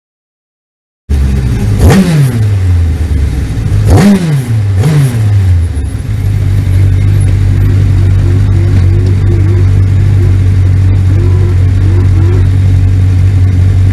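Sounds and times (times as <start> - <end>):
racing car engine revving and idling: 1.1 - 13.9.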